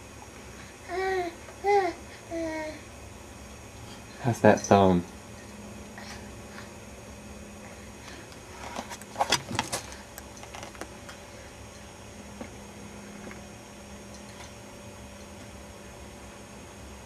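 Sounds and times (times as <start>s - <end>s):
low room hum: 0.0s - 17.0s
plastic baby toy rattling: 8.4s - 10.9s.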